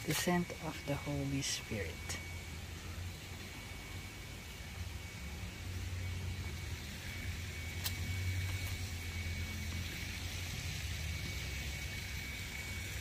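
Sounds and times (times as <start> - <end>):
faint high-pitched tone: 0.0 - 6.4.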